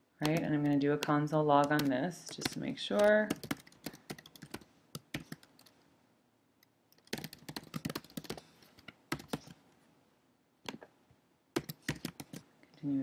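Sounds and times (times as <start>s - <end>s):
computer keyboard typing: 0.2s - 5.8s, 6.9s - 9.6s, 11.6s - 12.4s.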